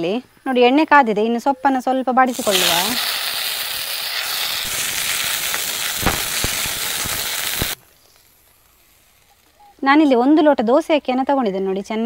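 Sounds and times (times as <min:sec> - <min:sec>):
leaves sizzling in hot oil: 0:02.2 - 0:10.8.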